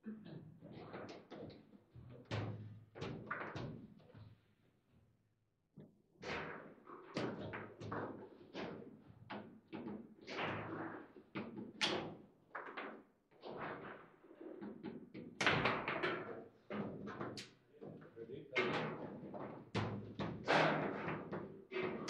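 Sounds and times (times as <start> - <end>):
table football ball and rods clacking: 15.4 - 17.6.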